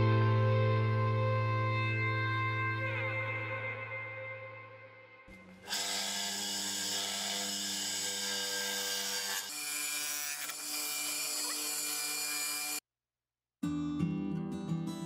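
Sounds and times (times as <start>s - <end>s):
electric motor hum: 5.4s - 12.8s.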